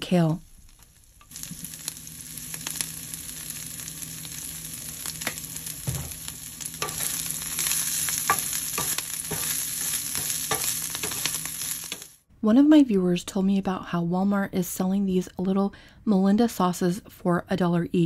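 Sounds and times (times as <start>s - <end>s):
kale sizzling in frying pan: 0.0s - 12.2s
wooden spatula stirring leaves: 5.0s - 12.1s
soft thump: 5.8s - 6.2s.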